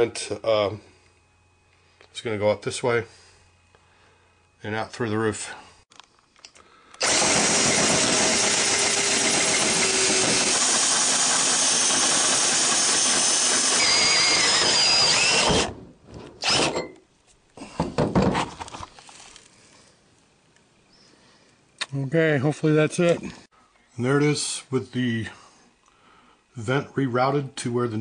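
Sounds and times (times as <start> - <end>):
power tool cutting: 7.0 - 15.8, 16.4 - 16.8.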